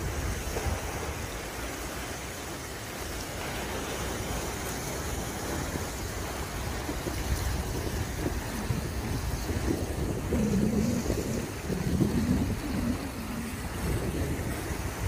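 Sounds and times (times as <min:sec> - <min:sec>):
water lapping against rocks: 0:00.0 - 0:15.0
wind on microphone: 0:00.0 - 0:15.0.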